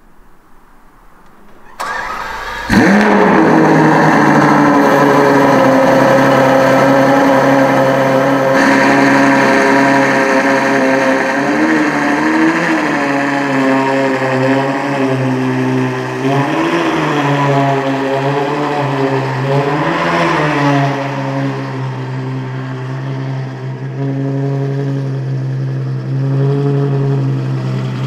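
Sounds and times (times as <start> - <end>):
starter motor cranking: 1.3 - 3.8
car engine idling loudly: 1.5 - 28.0.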